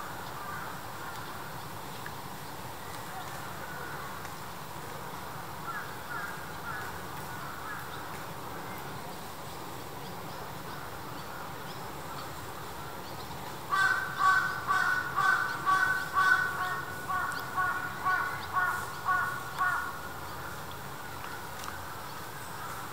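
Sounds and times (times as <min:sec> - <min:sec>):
crow cawing: 0:13.7 - 0:20.0.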